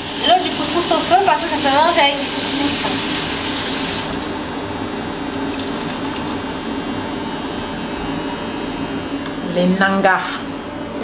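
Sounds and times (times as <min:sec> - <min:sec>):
tap water running into sink: 0:00.0 - 0:06.7.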